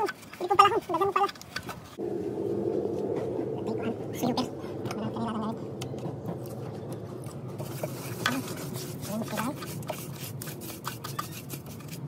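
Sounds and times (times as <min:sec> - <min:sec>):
steady low hum: 0:02.0 - 0:10.9
wet sponge scrubbing: 0:07.6 - 0:12.0.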